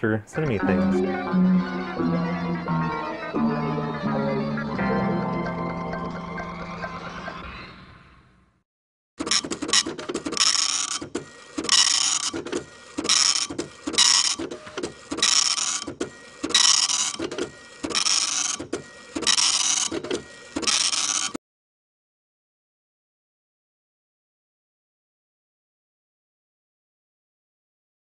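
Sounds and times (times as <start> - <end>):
dot-matrix printer printing: 9.2 - 21.4.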